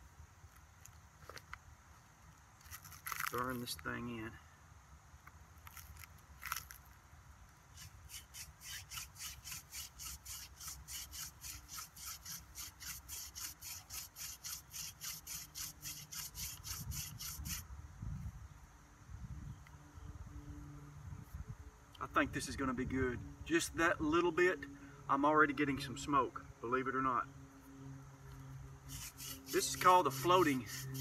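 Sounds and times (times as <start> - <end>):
wooden drill rubbing in board: 7.7 - 17.6, 28.9 - 31.0.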